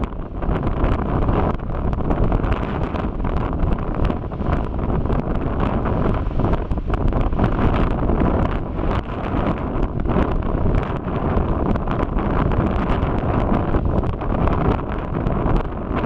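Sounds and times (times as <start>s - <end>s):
lava popping and cracking: 0.0s - 16.0s
lava rushing: 0.0s - 16.0s.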